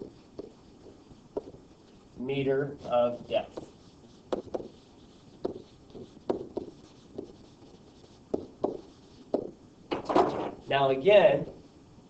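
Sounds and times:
stylus tapping on screen: 3.5 - 7.5, 8.3 - 9.6.

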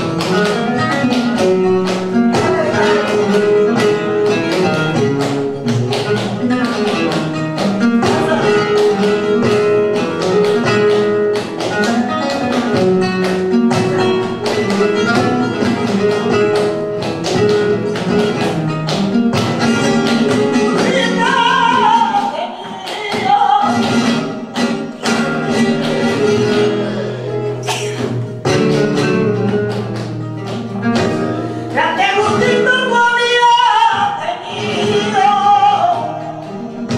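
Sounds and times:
flamenco guitar playing: 0.0 - 36.9
rhythmic handclaps: 0.0 - 36.9
woman singing flamenco: 0.0 - 36.9.

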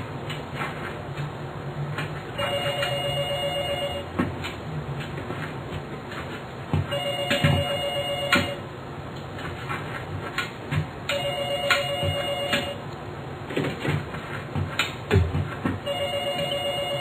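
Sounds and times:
telephone ringing: 2.4 - 4.1, 6.9 - 8.6, 11.1 - 12.8, 15.8 - 17.0
dull thumps: 13.5 - 16.6.

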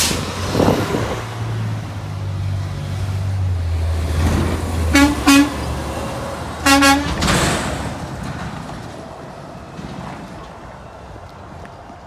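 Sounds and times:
truck horn blasts: 4.9 - 5.7, 6.6 - 7.2.

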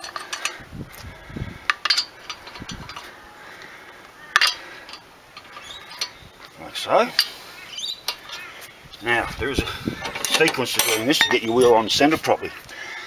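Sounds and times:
wheel nuts clicking and clinking: 0.0 - 0.6, 1.6 - 3.1, 4.3 - 6.2, 10.0 - 12.0.

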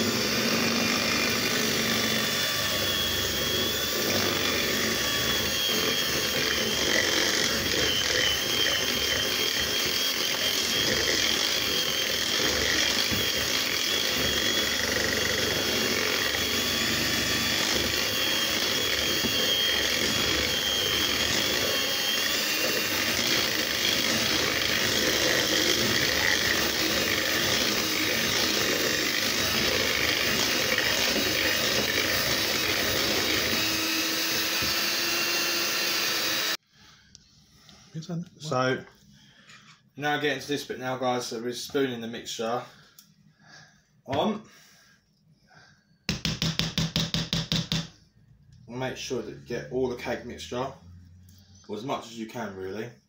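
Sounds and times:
electric hand mixer running: 0.0 - 36.6.

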